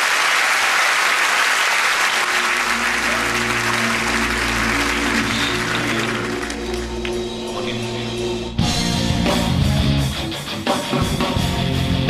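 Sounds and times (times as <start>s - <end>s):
audience applauding: 0.0s - 7.7s
music with low bass and chords: 2.9s - 12.0s.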